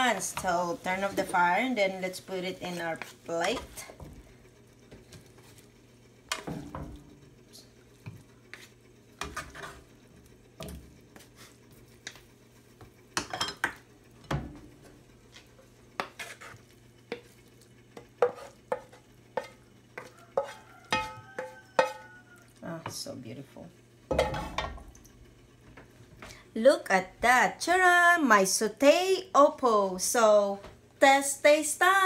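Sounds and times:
utensil scraping a pan: 0:00.0 - 0:04.0, 0:08.5 - 0:09.9, 0:15.3 - 0:17.3, 0:18.0 - 0:22.2.

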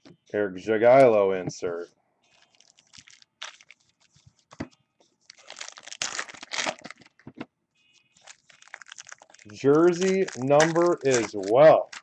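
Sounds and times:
cards and plastic sleeves rustling: 0:02.3 - 0:07.4, 0:08.2 - 0:12.0.

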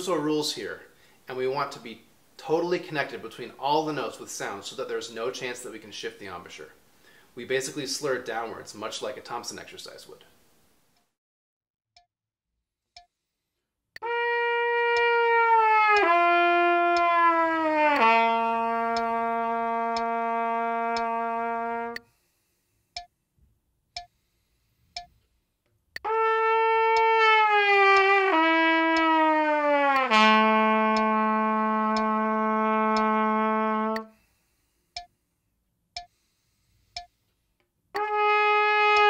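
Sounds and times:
trumpet slurring descending notes: 0:14.0 - 0:22.0, 0:26.0 - 0:34.2, 0:38.0 - 0:39.0
metronome clicking: 0:14.9 - 0:22.1, 0:22.9 - 0:23.1, 0:23.9 - 0:24.3, 0:24.9 - 0:27.2, 0:27.9 - 0:34.2, 0:34.9 - 0:35.2, 0:36.0 - 0:36.3, 0:37.0 - 0:39.0.

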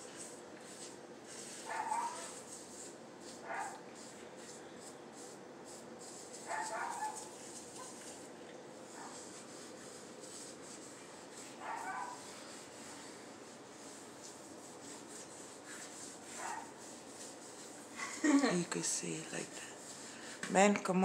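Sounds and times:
sponge scrubbing tiled countertop: 0:00.0 - 0:21.0.

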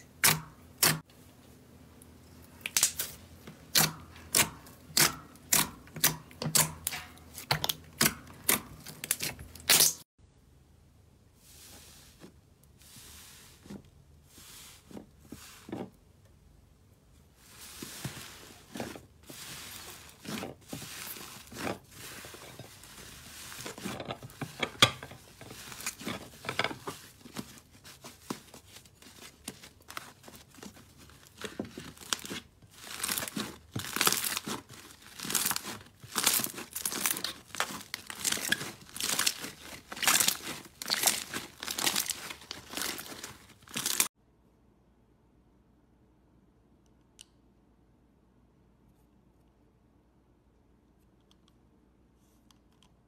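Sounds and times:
slime crackling and tearing: 0:02.6 - 0:10.0, 0:29.0 - 0:44.1.

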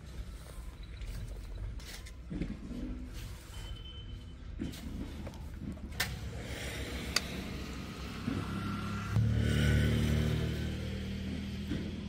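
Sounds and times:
vehicle engine drone: 0:05.0 - 0:12.0.

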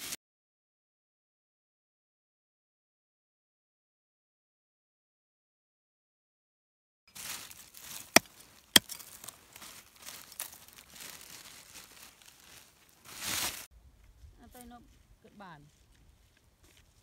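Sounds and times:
rustling: 0:07.1 - 0:13.7
hands and plastic bag in soil: 0:07.1 - 0:15.9.

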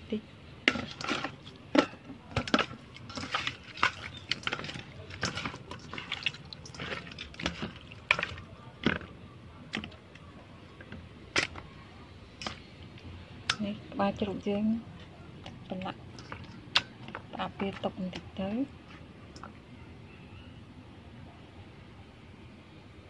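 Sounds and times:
wet squelches of kneaded meat: 0:00.7 - 0:13.7, 0:14.9 - 0:19.1.

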